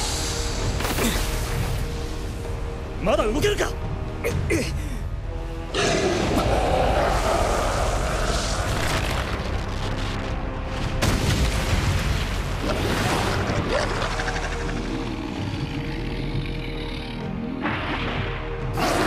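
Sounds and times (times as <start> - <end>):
background music: 0.0 - 19.0
earth and rock bursting: 6.2 - 15.1.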